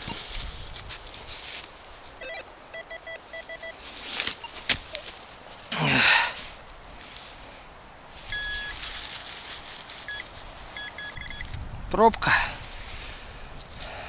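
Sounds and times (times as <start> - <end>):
scraping rustles: 0.0 - 2.2, 6.4 - 11.1
metal detector beeping: 2.2 - 3.8, 8.3 - 8.8, 10.0 - 11.5.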